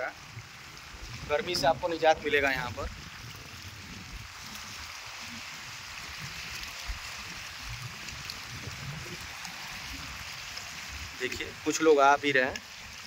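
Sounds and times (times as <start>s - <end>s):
wind buffeting microphone: 0.2s - 11.7s
waves lapping against rocks: 0.2s - 13.0s.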